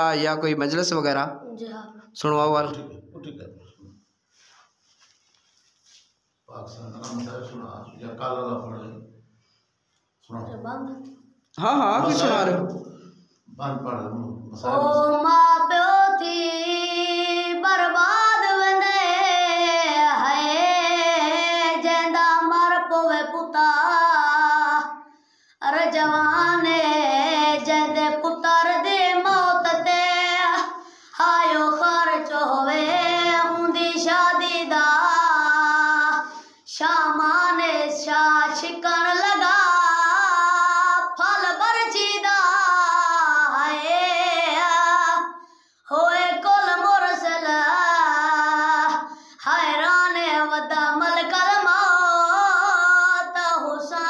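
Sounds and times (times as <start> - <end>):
boy singing unaccompanied: 14.6 - 25.0, 25.6 - 54.0.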